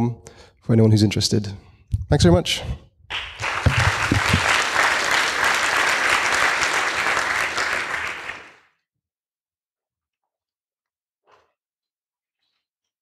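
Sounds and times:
audience applauding: 0:03.1 - 0:08.6.

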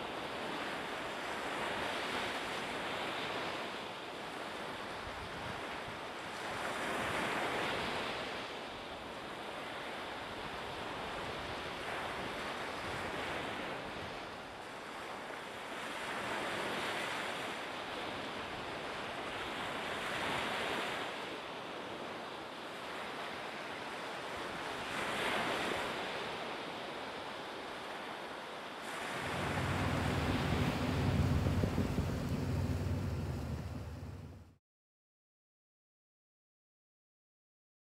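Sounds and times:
small waves washing onto beach: 0:00.0 - 0:34.5
wind on microphone: 0:28.9 - 0:34.5
ferry engine drone: 0:29.0 - 0:34.6.

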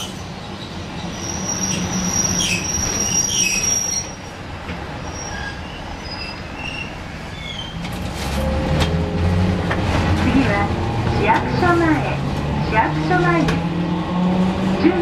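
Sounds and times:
tram wheels rumbling on rails: 0:00.0 - 0:15.0
high-pitched wheel squeal: 0:01.0 - 0:04.2, 0:05.0 - 0:07.8.

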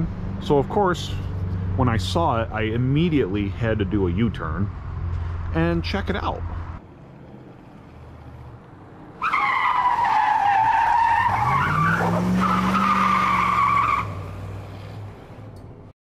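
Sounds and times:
tires squealing: 0:07.6 - 0:15.5
engine revving: 0:10.8 - 0:15.6.

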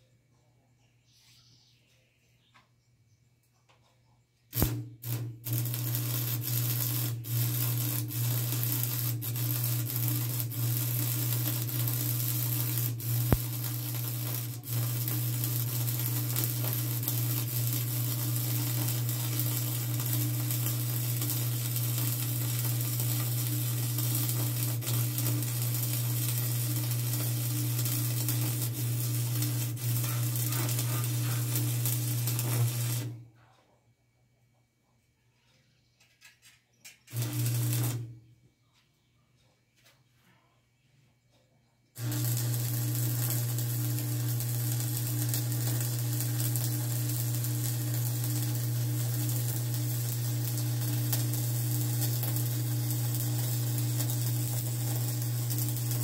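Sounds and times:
arc welding crackling hiss: 0:04.5 - 0:33.2, 0:37.1 - 0:38.2, 0:42.0 - 0:56.0
welding pops: 0:04.5 - 0:33.2, 0:36.8 - 0:38.2, 0:42.0 - 0:56.0.

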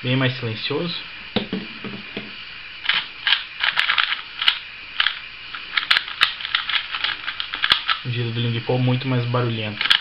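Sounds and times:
plastic puzzle cube clicking: 0:05.8 - 0:08.0.

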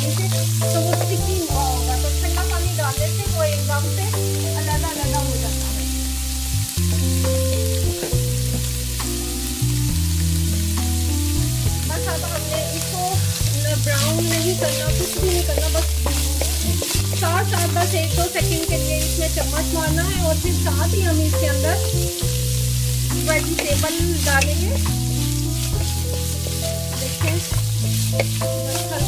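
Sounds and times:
wooden spoon stirring and scraping: 0:00.0 - 0:02.3, 0:11.9 - 0:29.0
background music with low notes: 0:00.0 - 0:29.0
vegetables sizzling in a pan: 0:00.0 - 0:29.0.

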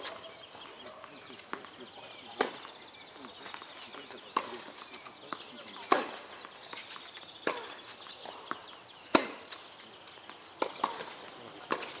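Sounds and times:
rackets striking tennis ball: 0:00.7 - 0:02.8, 0:03.4 - 0:12.0
tennis ball bouncing: 0:01.4 - 0:02.8, 0:03.4 - 0:09.6, 0:10.2 - 0:12.0.

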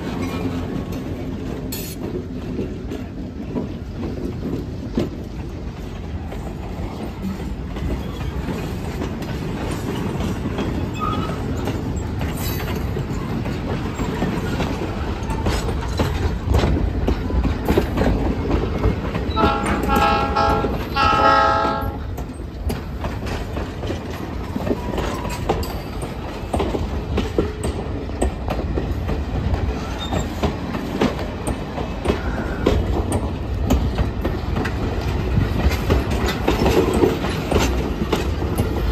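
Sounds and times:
train wheels rumbling on rails: 0:00.0 - 0:38.9
wheels clicking over rail joints: 0:00.0 - 0:38.9
locomotive horn blasts: 0:19.3 - 0:22.1.

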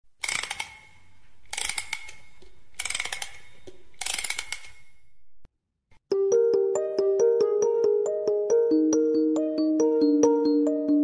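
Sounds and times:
rapid ratchet-like clicks: 0:00.2 - 0:05.0.

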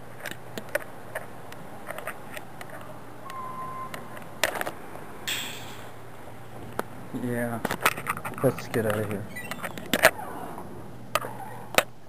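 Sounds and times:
steady low hum: 0:00.0 - 0:12.0
high squeak: 0:09.2 - 0:10.5.

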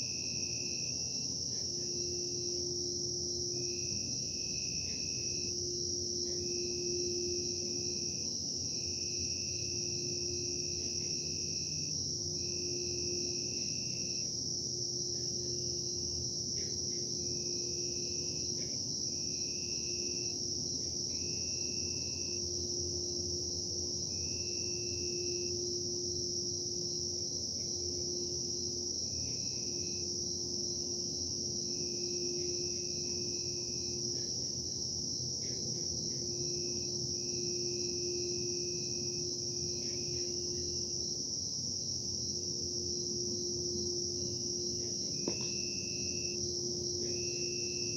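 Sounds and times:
intermittent high tone: 0:00.0 - 0:47.9.

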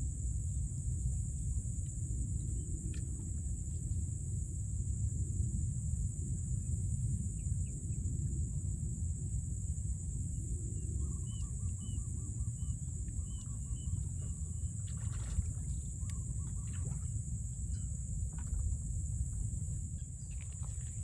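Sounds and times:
wind rumbling on microphone: 0:00.0 - 0:21.0.

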